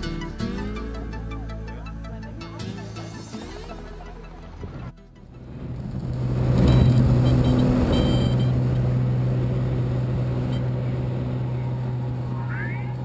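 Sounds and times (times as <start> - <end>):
light aircraft engine droning: 5.2 - 13.0.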